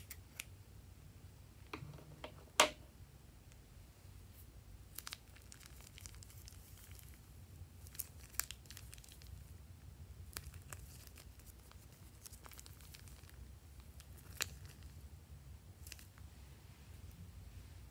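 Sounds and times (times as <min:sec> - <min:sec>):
plastic piping bag crinkling: 0:04.8 - 0:09.5, 0:10.2 - 0:15.0, 0:15.8 - 0:16.2
sticky slime crackles: 0:04.9 - 0:09.5, 0:10.2 - 0:15.0, 0:15.8 - 0:16.2.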